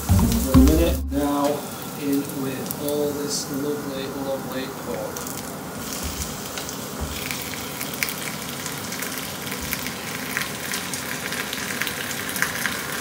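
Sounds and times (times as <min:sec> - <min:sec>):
meat sizzling in hot oil: 0:04.5 - 0:13.0.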